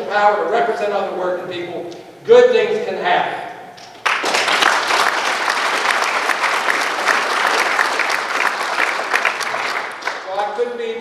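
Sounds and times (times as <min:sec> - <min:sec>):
audience applauding: 0:04.0 - 0:10.6.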